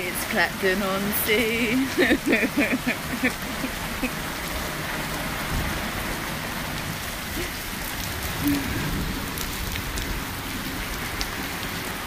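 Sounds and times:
steady rain falling: 0.0s - 12.0s.

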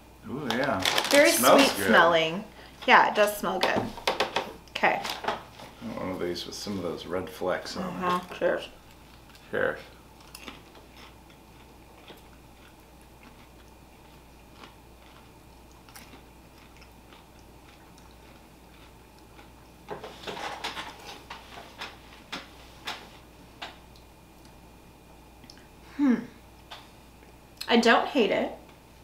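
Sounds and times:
popcorn being chewed: 0.4s - 1.8s, 8.0s - 22.3s, 23.6s - 24.7s.

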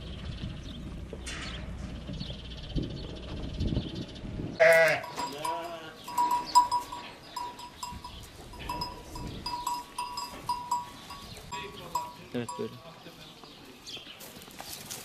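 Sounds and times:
sheep bleating: 4.6s - 5.5s
small bell clinking: 4.9s - 12.9s.

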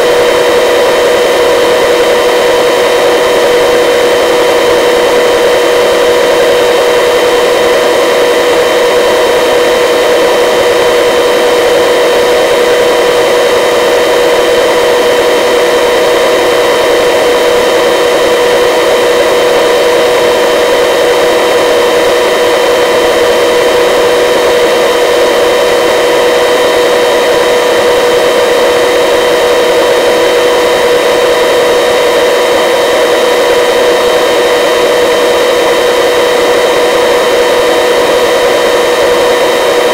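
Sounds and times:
helicopter engine and rotor noise: 0.0s - 39.9s.

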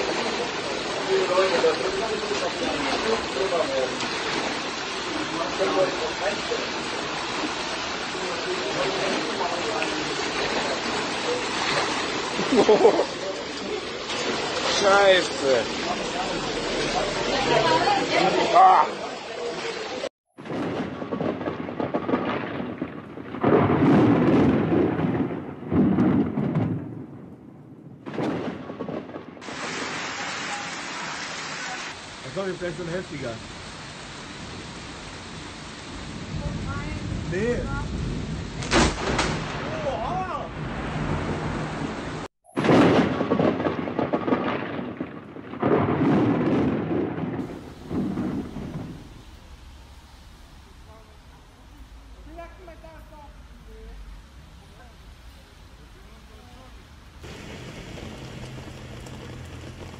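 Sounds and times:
floodwater rushing down street: 0.0s - 25.9s, 28.9s - 59.9s
hail and rain pelting down: 0.0s - 26.8s, 28.1s - 59.9s
thunder crack and rumbling: 20.4s - 30.0s, 34.3s - 50.9s, 57.2s - 59.9s.

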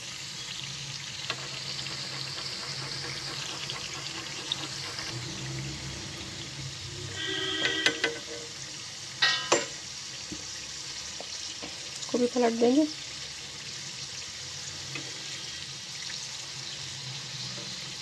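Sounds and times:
pastries sizzling in hot oil: 0.0s - 18.0s
short pitched sound: 4.9s - 8.6s.

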